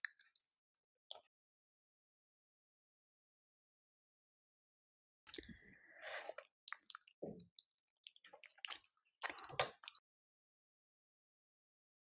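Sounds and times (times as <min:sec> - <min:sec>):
wet eating sounds: 0:05.3 - 0:10.0.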